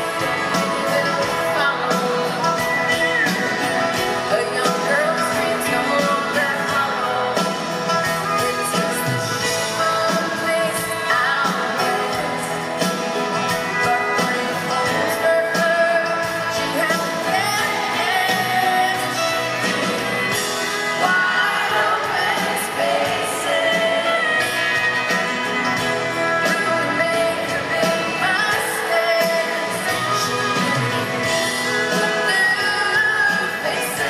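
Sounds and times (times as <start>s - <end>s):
woman singing lead vocal: 0.0s - 13.0s, 13.7s - 34.0s
acoustic guitar: 0.0s - 34.0s
banjo: 0.0s - 34.0s
drums: 0.0s - 34.0s.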